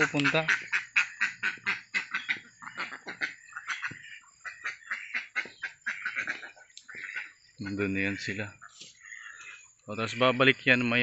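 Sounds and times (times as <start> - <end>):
ducks quacking: 0.0 - 11.0.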